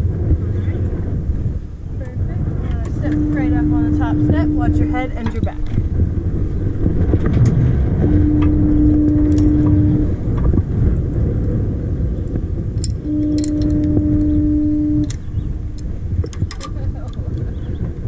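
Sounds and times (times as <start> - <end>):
wind buffeting microphone: 0.0 - 18.0
steady horn-like tone: 2.4 - 11.0, 13.0 - 16.0.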